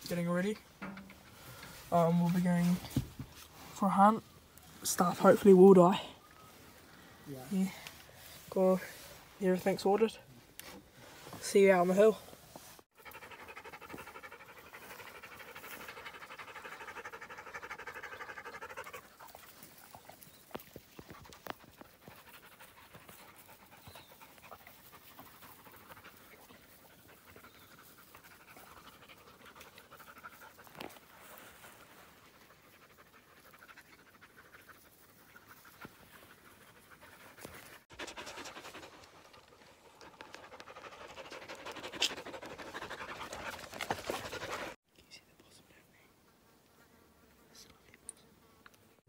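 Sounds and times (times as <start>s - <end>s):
dog panting: 13.0s - 44.8s.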